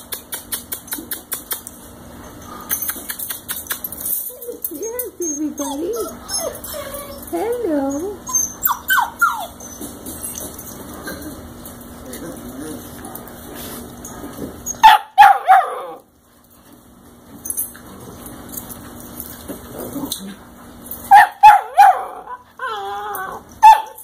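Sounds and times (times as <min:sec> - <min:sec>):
puppy whining: 0:02.6 - 0:14.9, 0:21.4 - 0:24.0
puppies yipping: 0:03.7 - 0:11.0.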